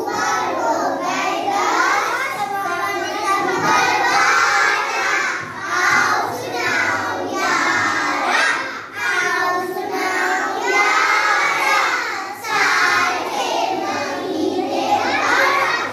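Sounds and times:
young children singing in unison: 0.0s - 15.9s.

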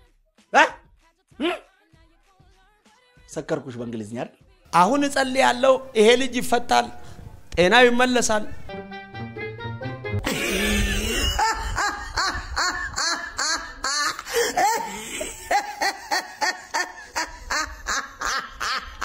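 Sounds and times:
woman laughing loudly: 10.2s - 19.0s.

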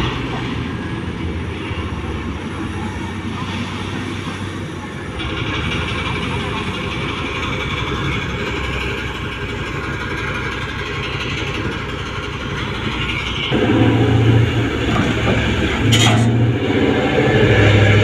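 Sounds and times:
haul truck diesel engine running: 4.1s - 18.0s.

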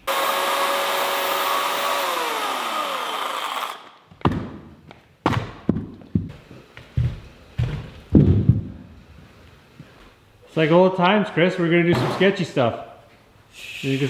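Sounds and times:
electric chainsaw winding down: 0.0s - 4.0s
thuds on concrete floor: 4.1s - 6.4s, 7.0s - 8.9s.

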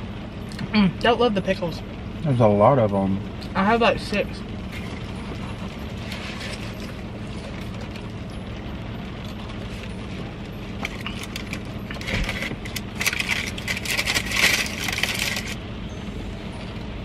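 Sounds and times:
steady low hum: 0.0s - 17.0s
packaging crinkling and rustling: 10.8s - 15.6s.

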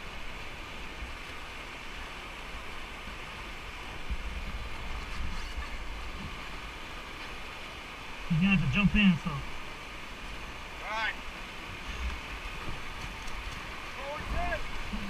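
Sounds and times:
whitewater rapids rushing: 0.0s - 15.0s
wind buffeting microphone: 3.5s - 6.8s, 11.5s - 15.0s.

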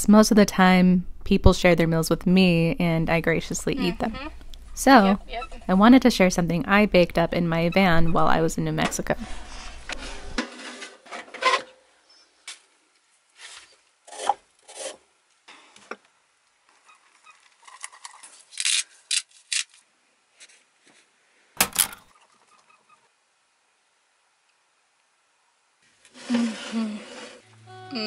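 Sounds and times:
utensil scraping mixing bowl: 7.7s - 11.0s.

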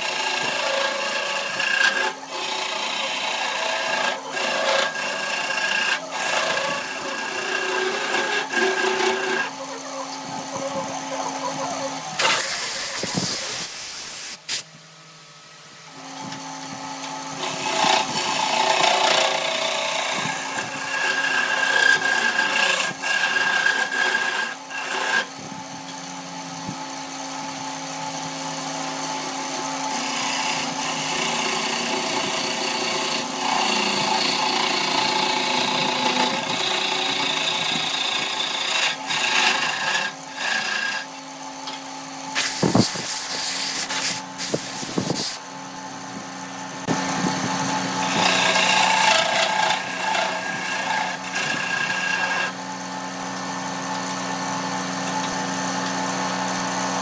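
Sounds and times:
gouge scraping wood: 0.0s - 9.9s, 17.4s - 25.3s, 29.9s - 41.1s, 42.4s - 45.4s, 48.0s - 52.6s
lathe motor hum: 0.0s - 13.7s, 15.9s - 57.0s.

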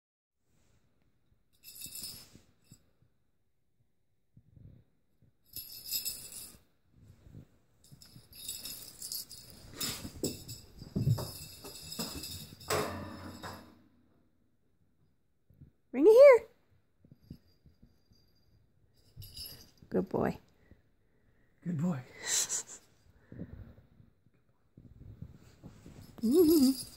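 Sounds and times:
jingle-bell ball rattling: 1.6s - 2.8s, 5.4s - 6.6s, 7.8s - 13.7s, 17.1s - 20.2s, 25.8s - 26.9s.

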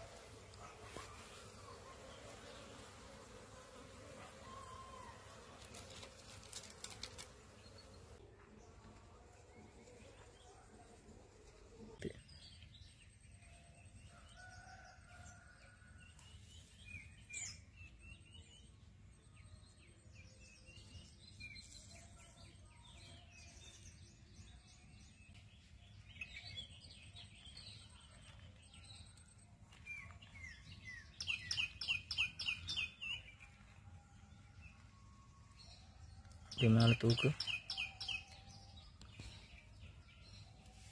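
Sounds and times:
birds chirping: 35.6s - 40.9s.

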